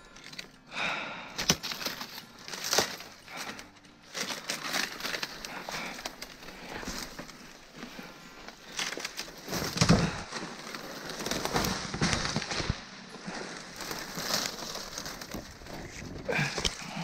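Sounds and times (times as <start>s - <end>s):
footsteps through crackling undergrowth: 0.0s - 17.0s
twig cracking: 1.4s - 12.8s.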